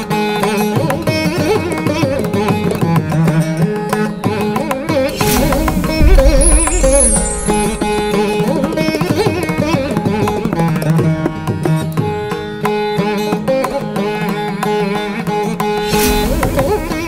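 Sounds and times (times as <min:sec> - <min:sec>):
plucked-string melody: 0:00.0 - 0:17.0
hand-drum beats: 0:04.4 - 0:12.0.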